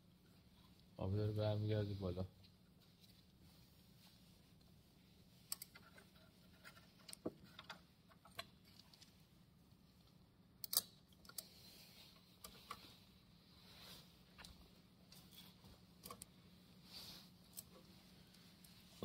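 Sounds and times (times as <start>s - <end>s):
faint clicks and knocks of fittings: 5.3s - 13.1s, 14.3s - 16.5s.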